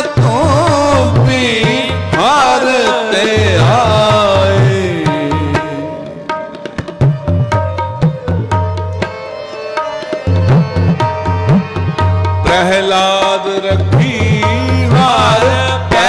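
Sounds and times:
person singing: 0:00.0 - 0:08.4, 0:12.4 - 0:16.0
harmonium tones: 0:00.0 - 0:16.0
tabla strokes: 0:00.0 - 0:16.0.

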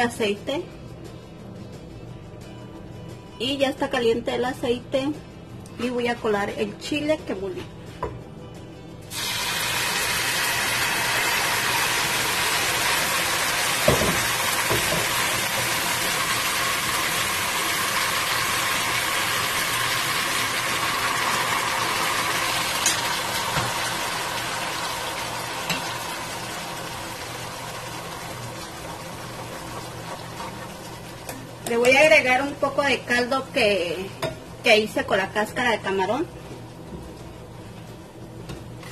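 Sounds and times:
sauce sizzling in hot oil: 0:09.1 - 0:33.0.

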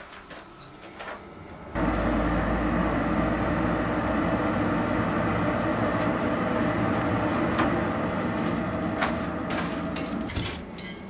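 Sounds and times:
forge blower air rushing: 0:01.4 - 0:10.7
low blower hum: 0:01.5 - 0:10.4.

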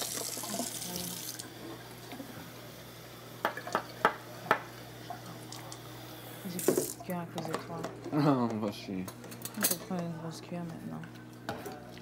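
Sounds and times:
water running from tap: 0:00.0 - 0:07.2
dishes clinking: 0:06.7 - 0:10.0.

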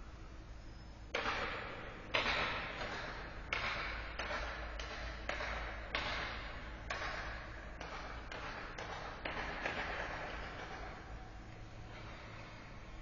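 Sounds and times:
low steady hum: 0:00.0 - 0:13.0
sharp echoing knocks: 0:01.1 - 0:11.2.

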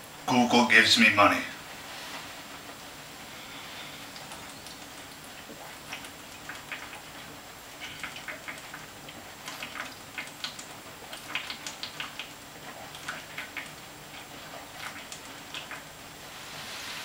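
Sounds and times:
liquid glugging in a bottle: 0:04.0 - 0:16.0.

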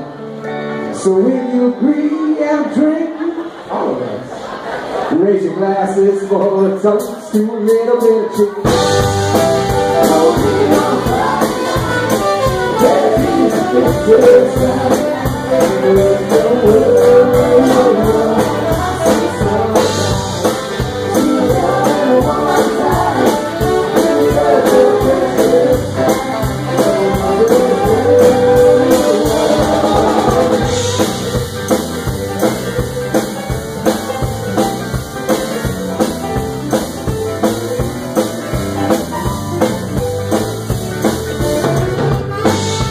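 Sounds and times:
person singing: 0:07.3 - 0:31.4
bass guitar: 0:08.4 - 0:42.9
drum beat: 0:08.6 - 0:42.9
electric guitar: 0:08.6 - 0:42.9
saxophone: 0:08.8 - 0:16.1, 0:41.5 - 0:42.9.

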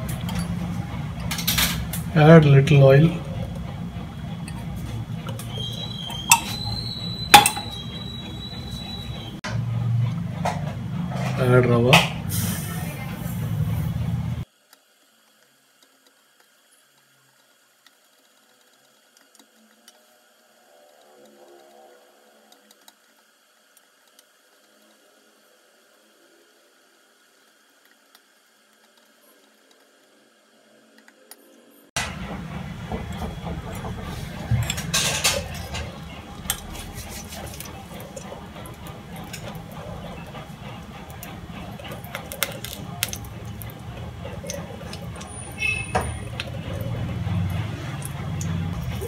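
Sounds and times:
steady low hum: 0:00.0 - 0:14.5, 0:28.9 - 0:49.0
metal tumbler clinking on pot: 0:07.3 - 0:07.8
wooden spatula scraping pot: 0:33.2 - 0:48.0.

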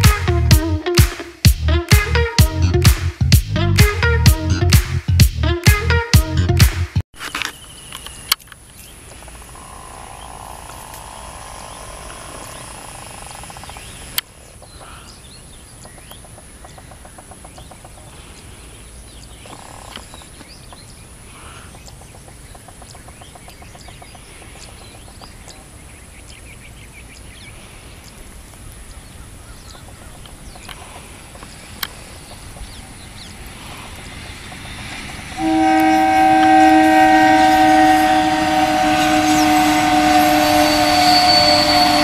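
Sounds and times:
distant train rumble: 0:00.0 - 0:01.0, 0:28.8 - 0:42.0
birds chirping: 0:07.5 - 0:42.0.

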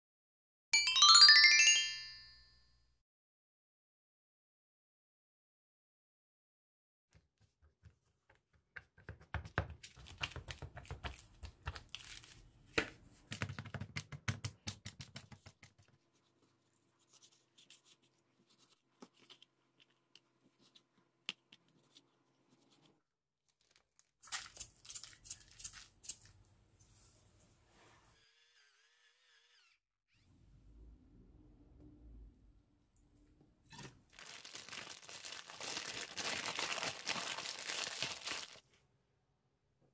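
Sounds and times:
plastic bag crinkling: 0:34.1 - 0:38.6.

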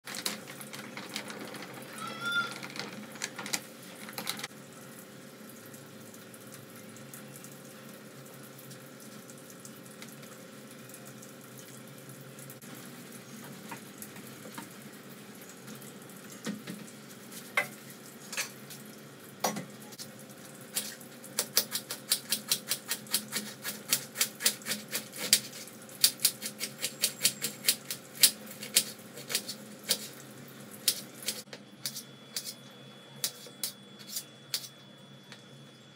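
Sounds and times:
knife chopping cabbage: 0:21.4 - 0:30.2.

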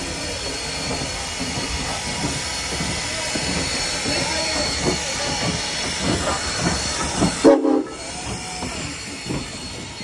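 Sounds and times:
steam locomotive hissing: 0:00.0 - 0:10.0
steam whistle toot: 0:07.3 - 0:08.9.

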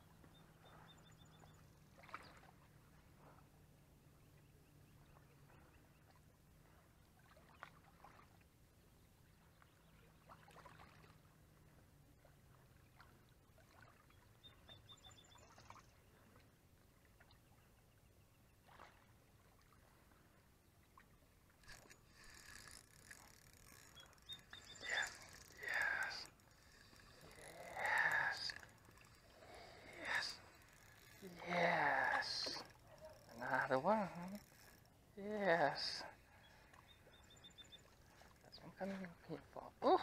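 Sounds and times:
fishing reel rustling and clicking: 0:21.5 - 0:36.0
faint ticks: 0:21.6 - 0:31.3.

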